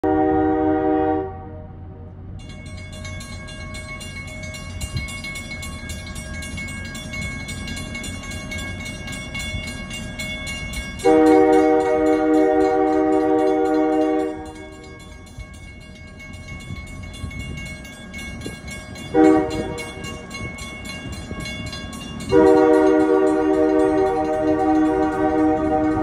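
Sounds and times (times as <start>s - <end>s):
locomotive horn: 0.0s - 2.1s, 11.0s - 14.9s, 19.1s - 20.2s, 22.3s - 26.0s
train rumble: 0.0s - 26.0s
crossing warning bell ringing: 2.2s - 26.0s.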